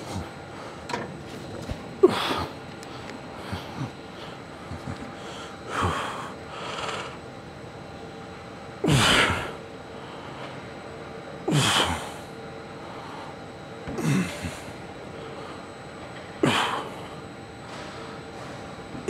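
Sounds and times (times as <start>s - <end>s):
man grunting: 8.8s - 9.6s, 14.0s - 14.7s.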